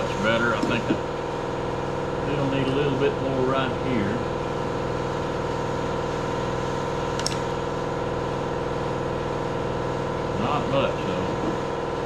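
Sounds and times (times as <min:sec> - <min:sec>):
motor humming: 0:00.0 - 0:12.0.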